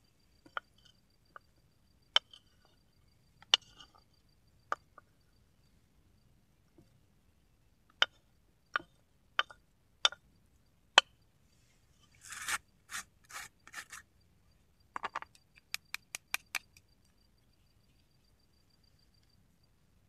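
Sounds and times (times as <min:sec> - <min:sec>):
metal tin lid scraping: 0:12.2 - 0:14.0.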